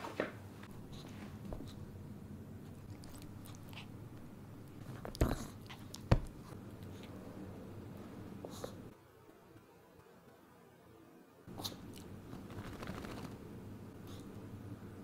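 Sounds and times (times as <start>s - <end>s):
soft chewing: 2.6s - 7.2s.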